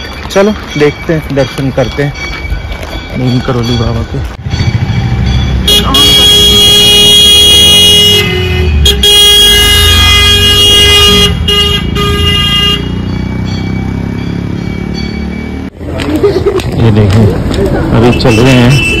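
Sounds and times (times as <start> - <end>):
loud horn blasts: 5.6 - 13.1.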